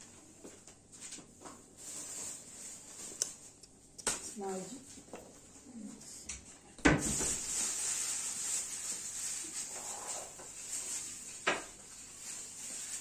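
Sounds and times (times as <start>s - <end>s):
dry pastry rustling and crackling: 7.2s - 13.0s.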